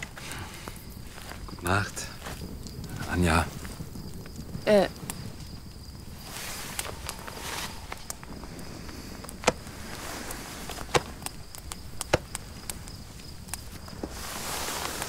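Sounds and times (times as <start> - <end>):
insect drone: 0.0 - 15.0
clothing rustling: 6.1 - 11.2, 13.6 - 15.0.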